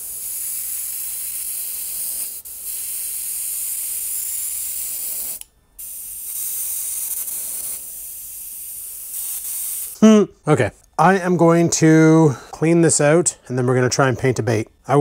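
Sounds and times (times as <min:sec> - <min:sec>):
airbrush hissing: 0:00.0 - 0:10.1.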